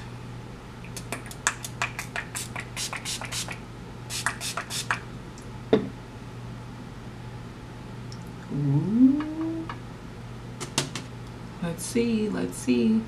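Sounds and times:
spray bottle spritzing: 0:02.0 - 0:05.0.

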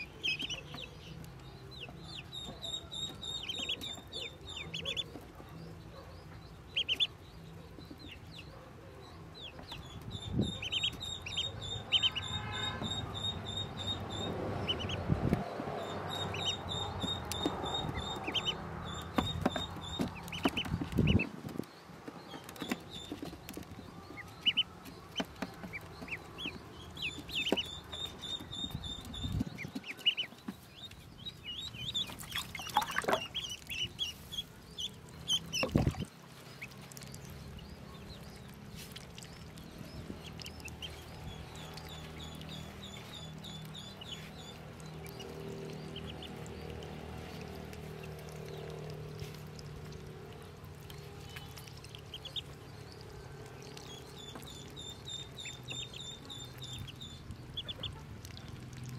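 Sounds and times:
ducklings peeping: 0:00.0 - 0:58.9
water splashing: 0:29.4 - 0:58.9.

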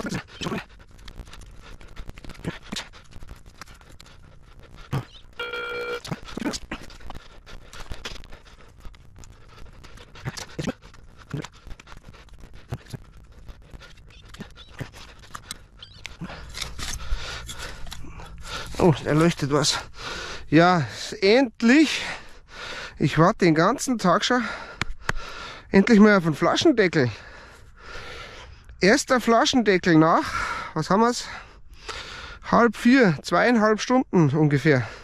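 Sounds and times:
metal detector beep: 0:05.4 - 0:06.1.

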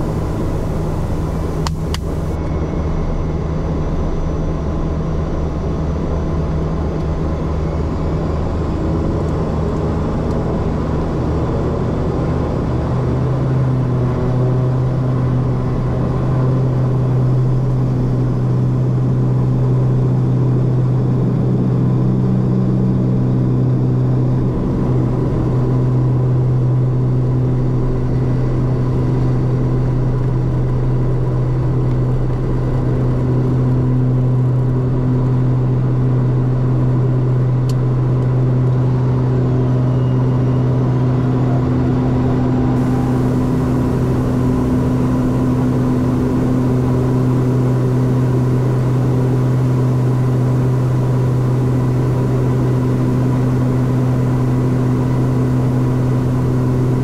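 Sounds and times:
thin engine hum: 0:00.0 - 0:02.4, 0:41.4 - 0:57.0
deep propeller drone: 0:00.0 - 0:57.0.

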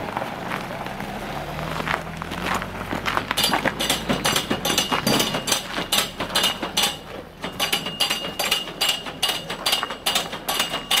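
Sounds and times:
footsteps crunching on snow: 0:00.1 - 0:03.8.

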